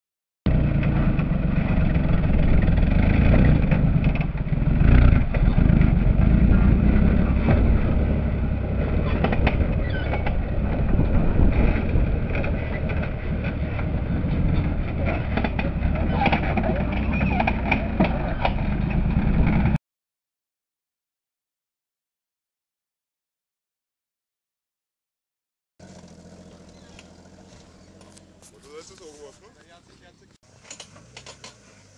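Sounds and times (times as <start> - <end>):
knocks and rattles: 0.5 - 19.8
off-road vehicle engine rumbling: 0.5 - 19.8, 25.8 - 31.9.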